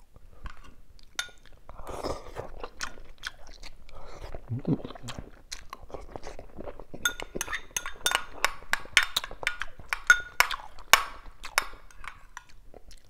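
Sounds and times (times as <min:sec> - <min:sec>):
metal spoon clinking on ceramic bowl: 0:01.2 - 0:01.4, 0:07.0 - 0:12.5.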